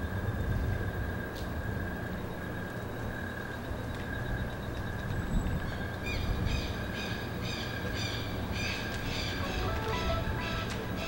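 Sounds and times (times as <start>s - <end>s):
low night ambience rumble: 0.0s - 11.0s
mobile phone ringing: 9.4s - 11.0s.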